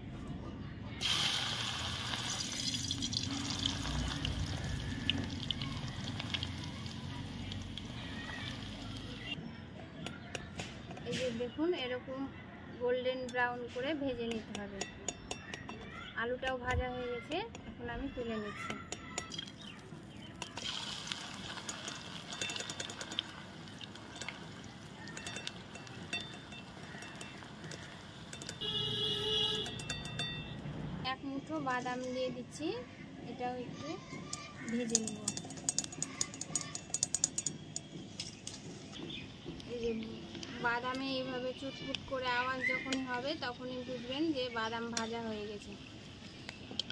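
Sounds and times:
potato sizzling in hot oil: 0:01.0 - 0:09.3, 0:19.3 - 0:28.6.

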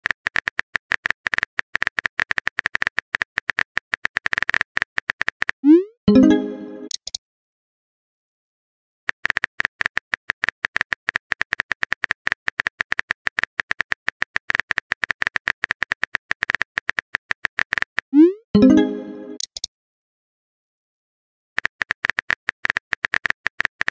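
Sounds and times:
keyboard typing clicks: 0:06.1 - 0:07.2, 0:18.6 - 0:19.7.

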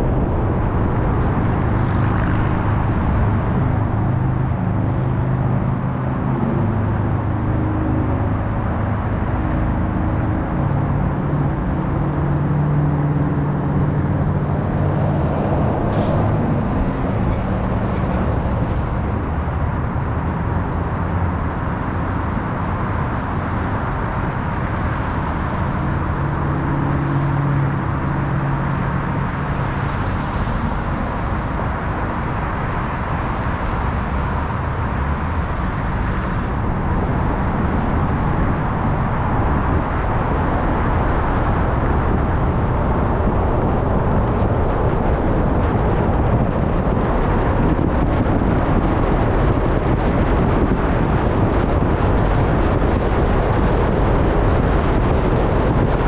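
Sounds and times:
car road noise rumble: 0:00.0 - 0:56.0.

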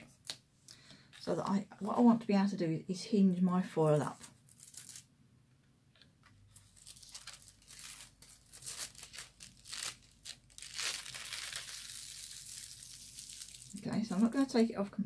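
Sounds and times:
metallic foil crinkling: 0:04.0 - 0:05.1, 0:06.5 - 0:14.7.

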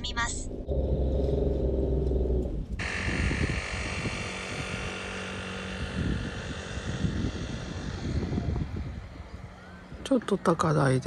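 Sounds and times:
car engine drone: 0:00.0 - 0:11.0
road noise: 0:00.0 - 0:11.0
wind buffeting microphone: 0:02.6 - 0:11.0.

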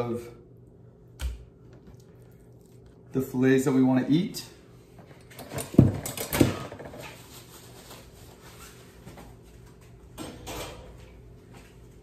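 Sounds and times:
paper towel rustling: 0:07.1 - 0:09.6.

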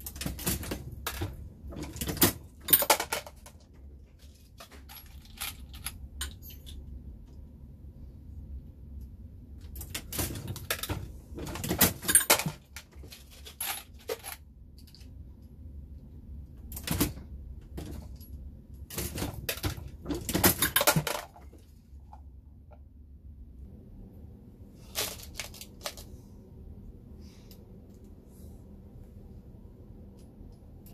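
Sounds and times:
reloading press clicks and clanks: 0:09.7 - 0:14.4, 0:18.8 - 0:21.5.

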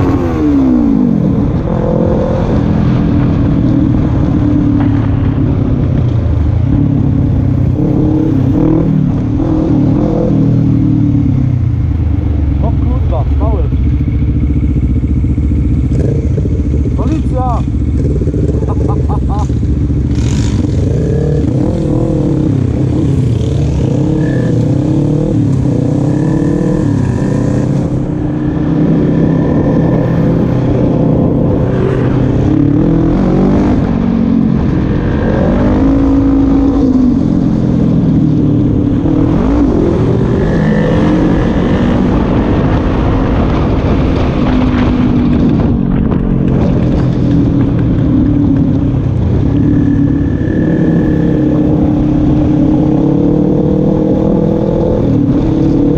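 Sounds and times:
quad bike engine revving: 0:12.6 - 0:55.9
wind buffeting microphone: 0:13.7 - 0:55.9.

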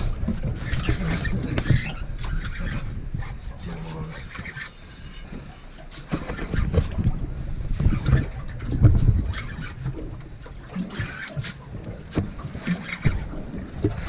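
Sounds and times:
low rumble: 0:00.0 - 0:05.2
knocks and thumps on boat: 0:00.0 - 0:14.0
water slapping against hull: 0:00.0 - 0:14.0.

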